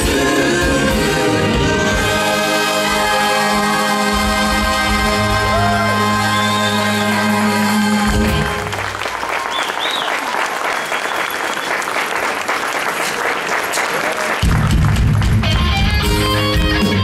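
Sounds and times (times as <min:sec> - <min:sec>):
live band and singers: 0:00.0 - 0:09.0
audience applause and cheering: 0:02.0 - 0:17.0.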